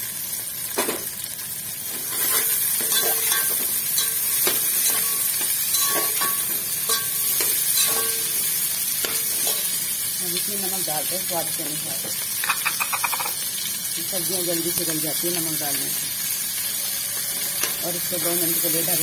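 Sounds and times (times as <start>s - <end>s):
vegetables sizzling in hot oil: 0.0s - 19.0s
metal spatula scraping pot: 2.0s - 8.4s, 16.7s - 17.9s.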